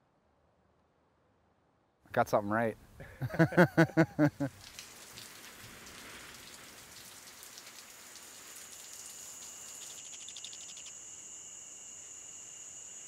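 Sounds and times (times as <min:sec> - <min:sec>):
faint rain pattering: 0:02.2 - 0:10.9.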